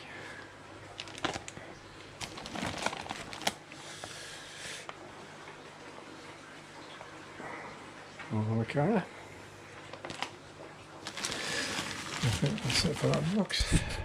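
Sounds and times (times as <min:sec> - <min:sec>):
plastic bags crinkling: 0:00.9 - 0:03.7, 0:09.9 - 0:10.4, 0:11.0 - 0:13.5.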